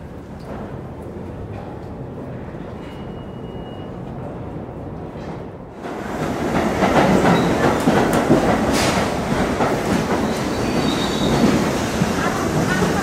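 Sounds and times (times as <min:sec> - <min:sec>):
subway train wheels clattering: 0:00.0 - 0:13.0.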